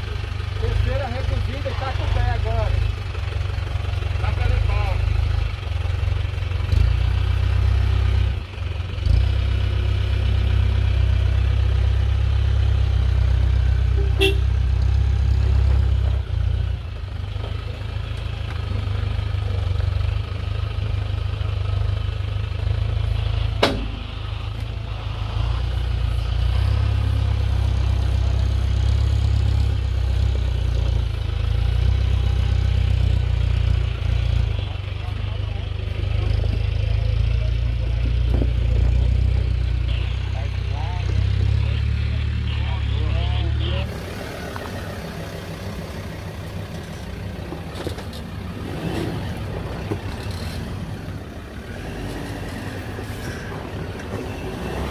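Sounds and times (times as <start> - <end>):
vehicle engine at low revs: 0.0 - 54.9
sharp knocks: 23.6 - 24.1.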